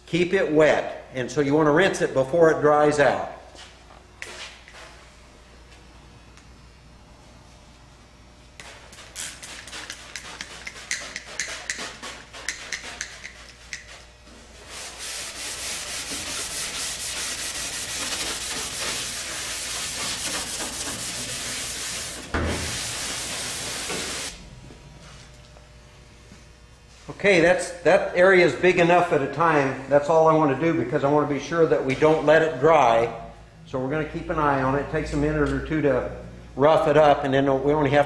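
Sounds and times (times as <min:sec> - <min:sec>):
pad scrubbing metal: 0:08.7 - 0:24.3.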